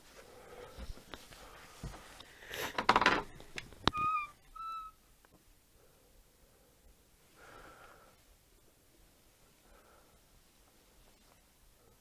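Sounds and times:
door hinges squeaking: 3.9s - 4.9s.

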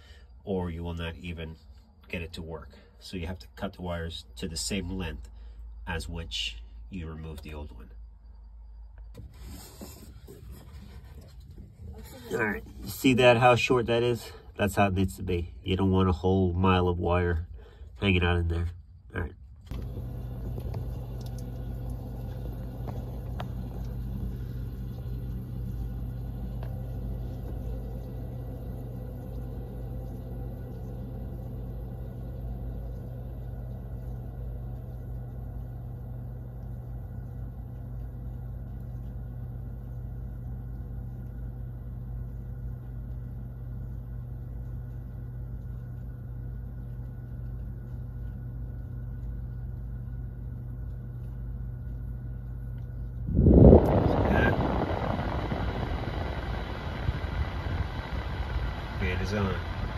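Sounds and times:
refrigerator humming: 0.0s - 59.9s.

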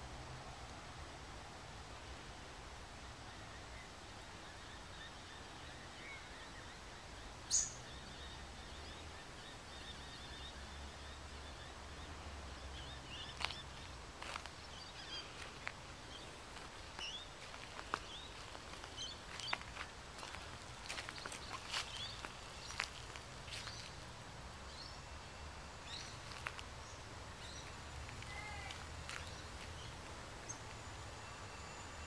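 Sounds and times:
small bird chirps: 7.4s - 11.7s
footsteps on dry soil: 13.2s - 24.0s, 25.9s - 26.8s, 28.0s - 29.9s.

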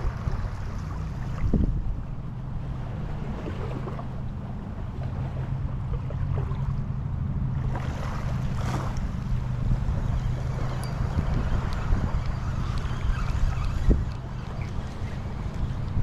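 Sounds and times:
surf at the shore: 0.0s - 16.0s
wind rumbling on microphone: 0.0s - 16.0s.

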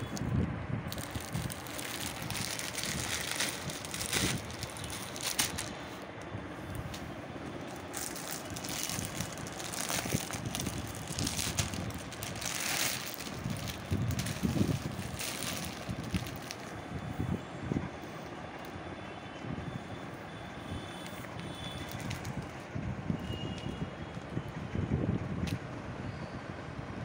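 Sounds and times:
plastic packaging crinkling: 0.9s - 17.0s, 21.0s - 22.6s.

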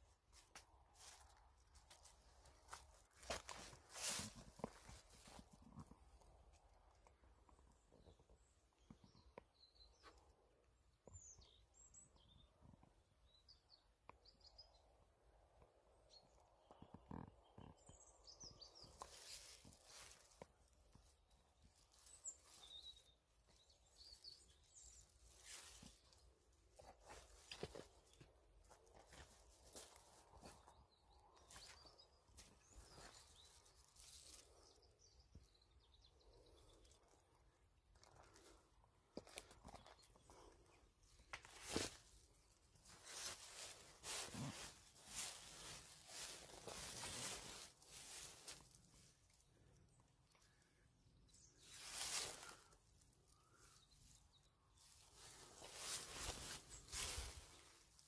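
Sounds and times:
faint birds chirping: 0.0s - 58.0s
soft rustles: 0.2s - 8.9s, 18.8s - 35.0s, 36.3s - 58.0s
footsteps on stones and dry leaves: 0.4s - 6.2s, 18.8s - 34.6s, 38.0s - 49.1s, 51.6s - 52.8s, 54.8s - 58.0s.

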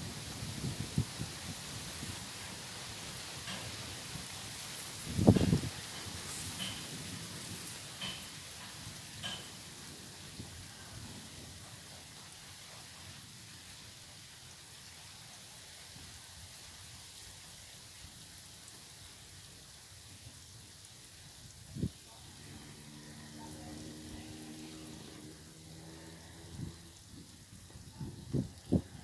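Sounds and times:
faint outdoor hiss: 0.0s - 29.0s.

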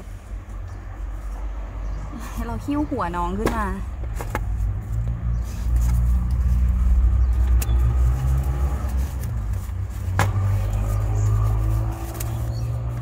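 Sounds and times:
vehicle engine rumbling: 0.0s - 13.0s.

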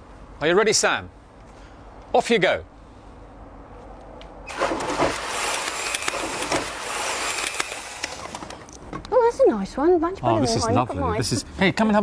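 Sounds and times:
splash into pool: 4.5s - 5.4s.

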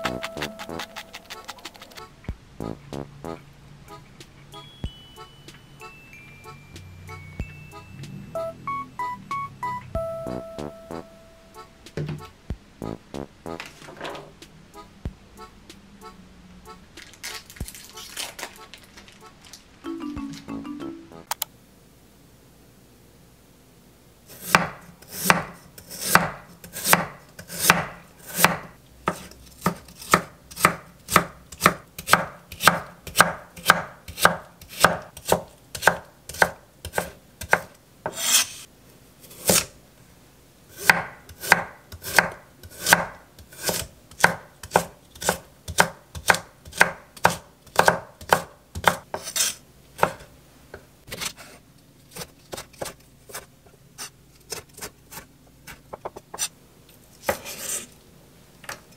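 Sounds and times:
knife chopping on wooden board: 24.4s - 38.4s, 40.8s - 50.2s.

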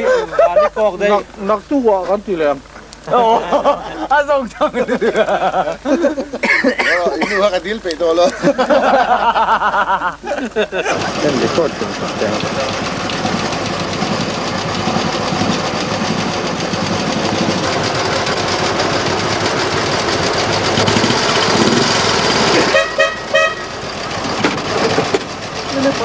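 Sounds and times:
motorcycle engines running: 0.0s - 26.0s
motorcycle horn toots: 22.6s - 23.8s.

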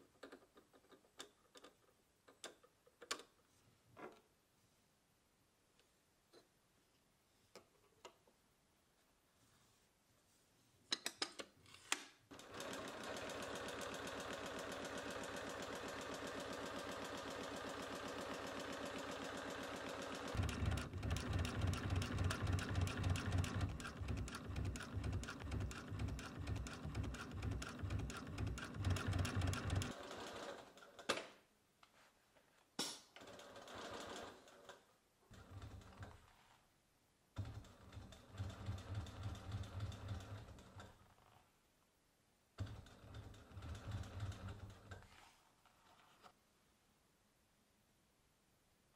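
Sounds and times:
sewing machine stitching: 12.3s - 31.1s, 33.2s - 36.6s, 37.4s - 41.4s, 42.6s - 45.2s.

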